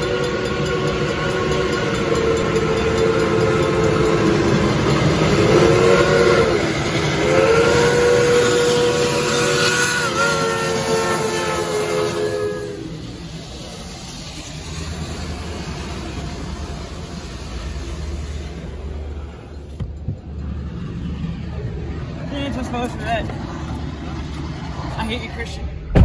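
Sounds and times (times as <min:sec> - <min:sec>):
steam locomotive chime whistle: 0:00.0 - 0:13.1.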